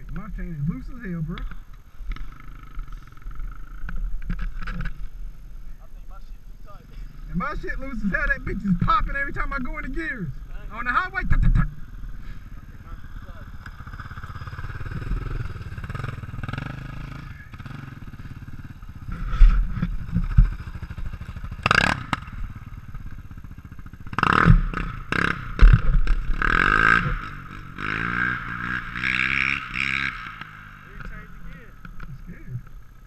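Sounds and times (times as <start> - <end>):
atv engine idling and revving: 0.0 - 33.0.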